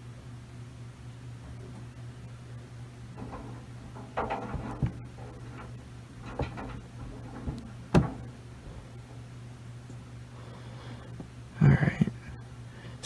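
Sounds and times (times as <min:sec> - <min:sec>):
washing machine drum humming: 0:00.9 - 0:10.4
load knocking in drum: 0:03.1 - 0:08.4.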